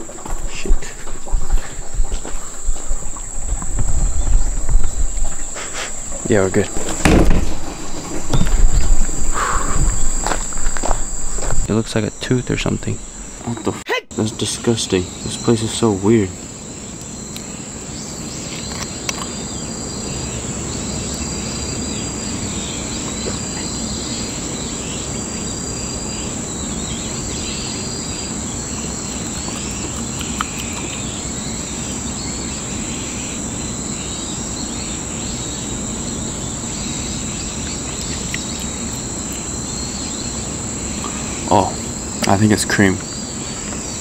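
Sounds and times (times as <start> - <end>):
high-pitched insect drone: 0.0 - 44.0
insect chirps: 0.0 - 44.0.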